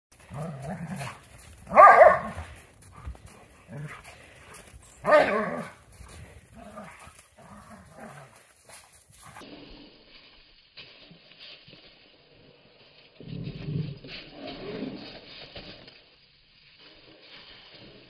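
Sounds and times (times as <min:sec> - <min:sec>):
dogs growling: 0:00.2 - 0:08.5
dog barking loudly: 0:01.7 - 0:02.5, 0:05.0 - 0:05.7.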